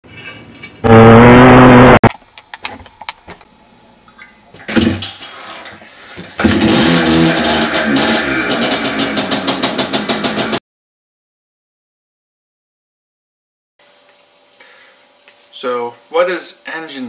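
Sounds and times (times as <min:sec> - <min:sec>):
motorcycle engine pulsing: 0:00.8 - 0:02.0
dirt bike engine revving: 0:00.8 - 0:02.1, 0:06.4 - 0:10.6.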